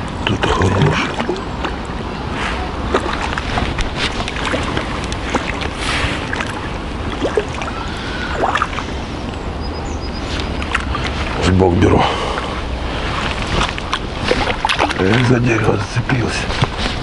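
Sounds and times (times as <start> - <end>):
watery rush: 0.0 - 17.0
fish splashing at water surface: 0.4 - 9.3, 12.0 - 15.4.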